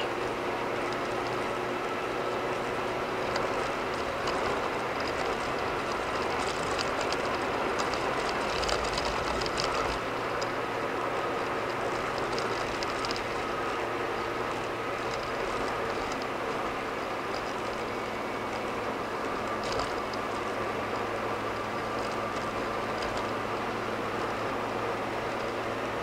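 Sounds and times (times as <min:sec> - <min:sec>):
low engine hum: 0:00.0 - 0:26.0
tyre and road noise: 0:00.0 - 0:26.0.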